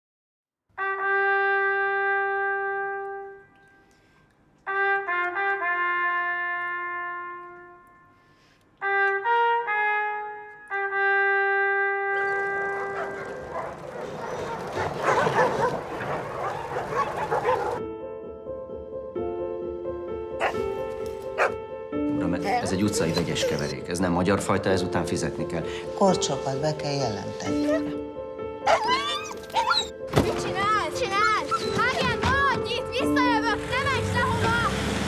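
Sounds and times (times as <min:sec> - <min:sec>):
solo trumpet playing: 0:00.8 - 0:03.4, 0:04.7 - 0:13.6
many dogs barking: 0:12.2 - 0:17.8, 0:20.4 - 0:20.7, 0:21.4 - 0:21.6.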